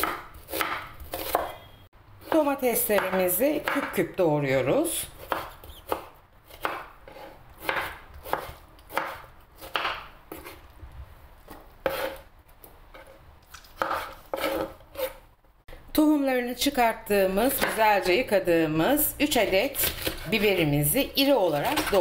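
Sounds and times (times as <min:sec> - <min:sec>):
knife chopping on wooden board: 0:00.0 - 0:01.7, 0:05.2 - 0:10.6, 0:11.5 - 0:12.2, 0:13.8 - 0:15.2, 0:17.6 - 0:17.9, 0:19.8 - 0:20.4.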